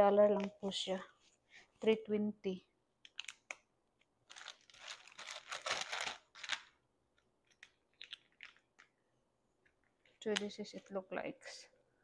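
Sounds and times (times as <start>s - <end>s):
plastic film crinkling and tearing: 3.1s - 3.6s, 4.2s - 6.8s, 7.5s - 8.9s.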